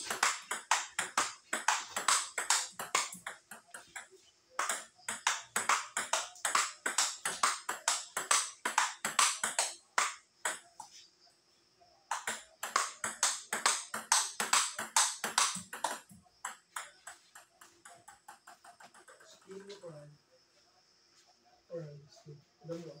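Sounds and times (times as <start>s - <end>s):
table tennis ball clicks: 0.0s - 10.9s, 12.1s - 19.3s.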